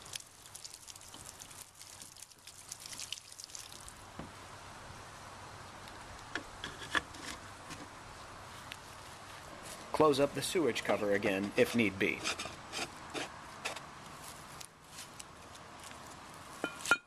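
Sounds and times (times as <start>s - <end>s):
hose water spattering on ground: 0.0s - 4.1s
faint steady hiss: 0.0s - 17.0s.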